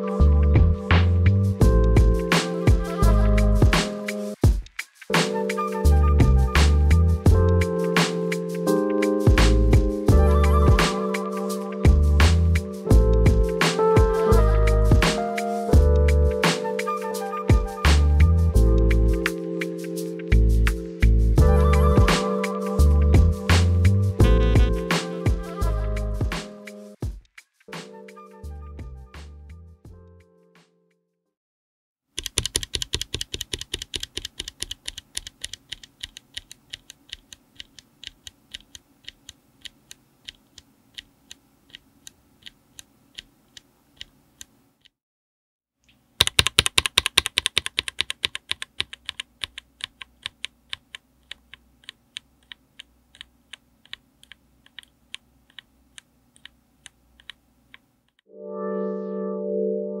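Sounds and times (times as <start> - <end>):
synth music: 5.1 - 26.9, 27.8 - 30.4, 58.3 - 60.0
mechanical keyboard switch clicking: 32.2 - 41.1, 46.2 - 56.6.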